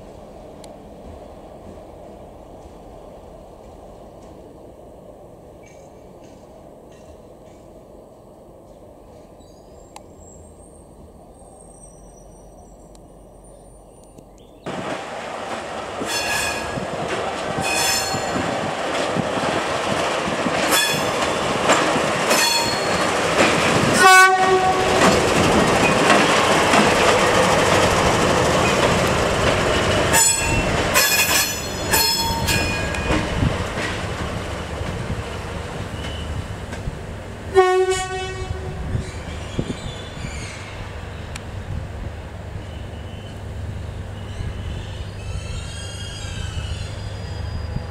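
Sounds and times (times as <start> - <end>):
diesel locomotive running: 10.7 - 47.9
wheels clattering on rails: 14.7 - 37.2
locomotive horn blasts: 24.0 - 25.1, 37.5 - 38.9.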